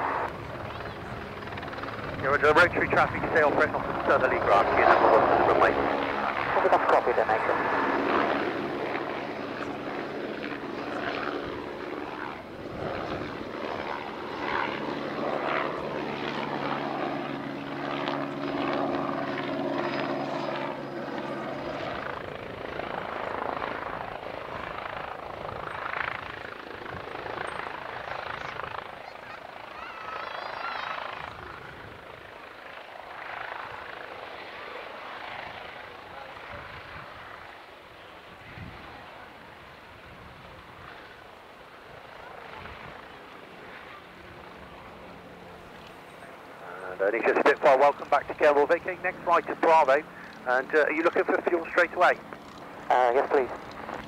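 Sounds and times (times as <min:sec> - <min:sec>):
aircraft rolling on runway: 0:00.0 - 0:20.5, 0:40.0 - 0:54.0
aircraft engine drone: 0:00.0 - 0:54.0.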